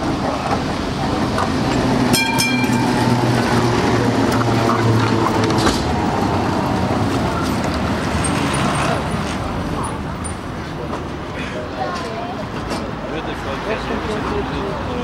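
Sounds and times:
steel wheels clattering on rails: 0:00.0 - 0:06.3
high ringing tone: 0:02.2 - 0:03.1.

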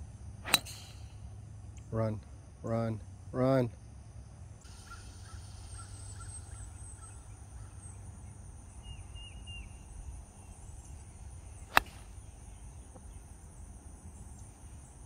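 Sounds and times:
golf club striking ball: 0:00.4 - 0:01.2, 0:11.7 - 0:12.1.

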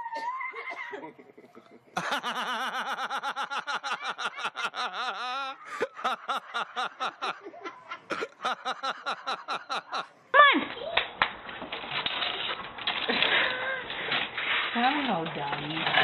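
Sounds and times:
person laughing hard: 0:00.2 - 0:10.1.

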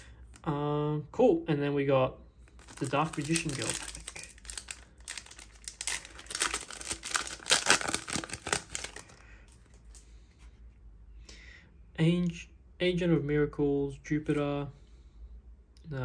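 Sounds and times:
foil pack tearing and crinkling: 0:02.5 - 0:10.0
cards being handled: 0:02.5 - 0:10.6.

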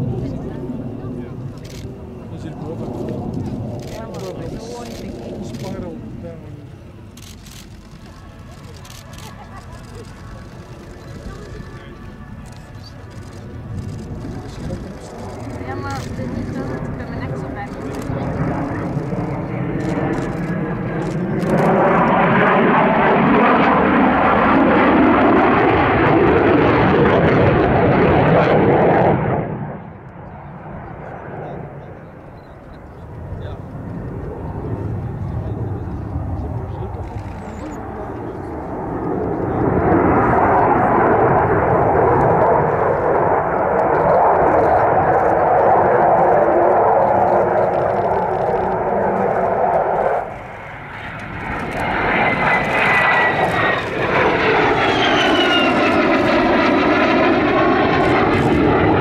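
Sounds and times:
jet engine roaring overhead: 0:00.0 - 0:59.0
fighter jet rushing: 0:33.1 - 0:59.0.

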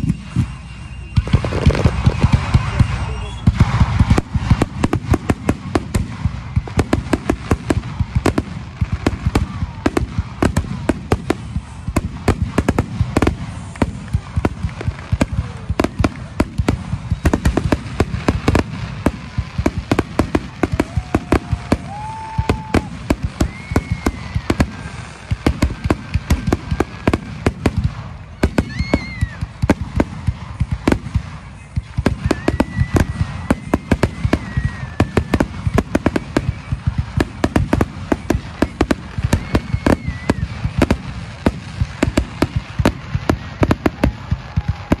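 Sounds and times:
fireworks bangs and crackles: 0:00.0 - 0:45.0
whistling fireworks: 0:00.0 - 0:45.0.

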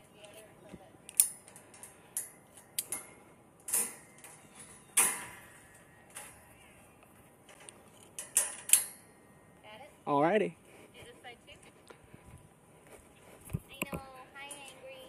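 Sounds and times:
metal fence clanking: 0:01.1 - 0:06.5, 0:07.4 - 0:09.2.

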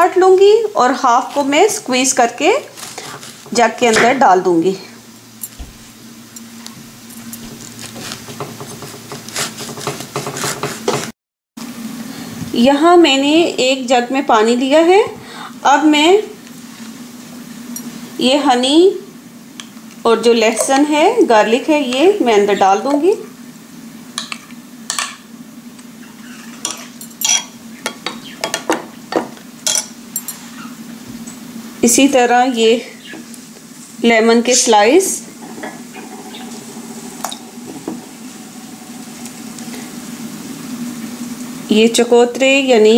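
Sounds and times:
low steady hum: 0:00.0 - 0:09.6, 0:11.7 - 0:42.9
knife slicing grapefruit: 0:09.2 - 0:11.1.

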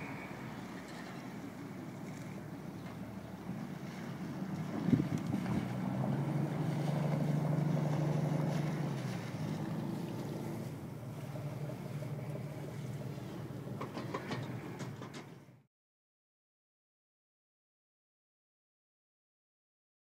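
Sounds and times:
boat engine humming: 0:00.0 - 0:15.6.

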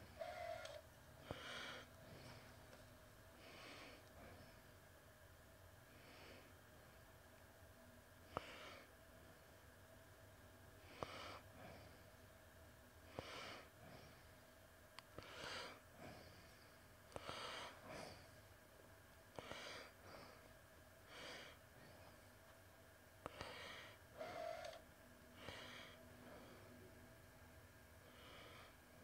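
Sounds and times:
person breathing quietly: 0:00.0 - 0:05.0, 0:05.8 - 0:07.2, 0:08.2 - 0:09.7, 0:10.7 - 0:12.2, 0:13.0 - 0:14.5, 0:15.1 - 0:18.6, 0:19.3 - 0:22.4, 0:23.2 - 0:27.0, 0:28.0 - 0:29.0
faint steady hum: 0:00.0 - 0:29.0.

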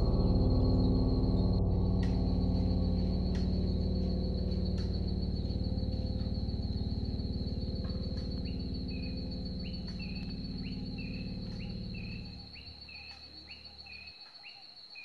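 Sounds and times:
soft background music: 0:00.0 - 0:12.4
high insect trill: 0:00.0 - 0:15.0.

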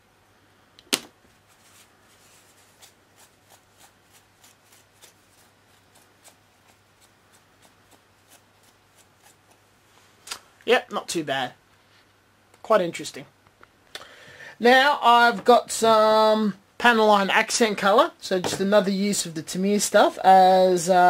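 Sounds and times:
tissue patting plastic: 0:01.0 - 0:09.6.

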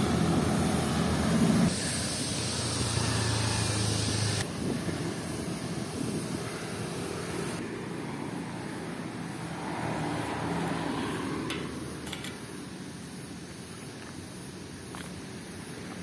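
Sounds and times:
street traffic noise: 0:00.0 - 0:16.0
sunglasses clicking on metal table: 0:11.5 - 0:12.5.

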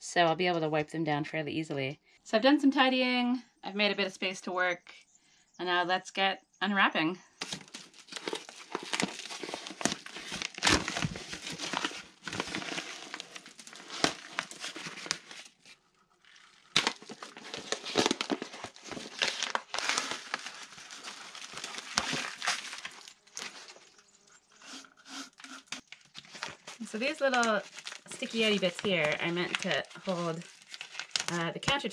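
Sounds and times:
plastic sheeting crinkling: 0:07.4 - 0:31.9.

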